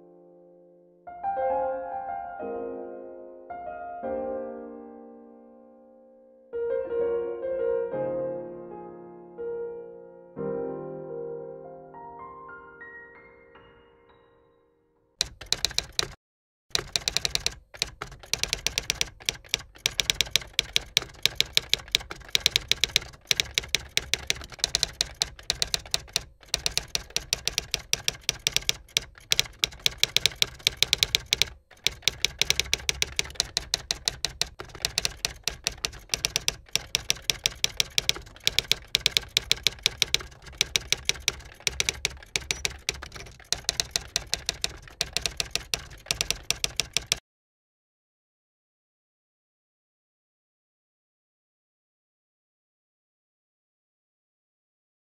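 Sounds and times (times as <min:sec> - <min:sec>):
manual typewriter typing: 0:15.2 - 0:47.2.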